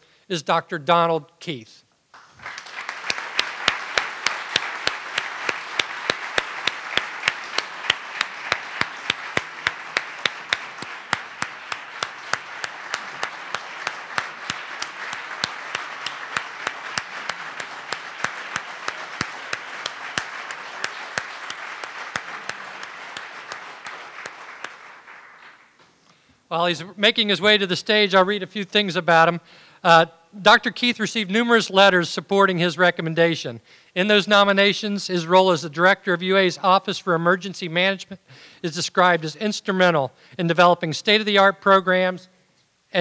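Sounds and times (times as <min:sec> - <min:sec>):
audience applauding: 0:02.1 - 0:25.9
close sharp hand claps: 0:02.1 - 0:26.0.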